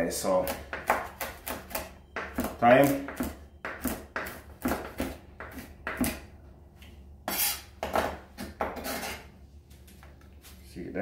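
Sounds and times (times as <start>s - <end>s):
knife chopping on wooden board: 0.4s - 6.3s.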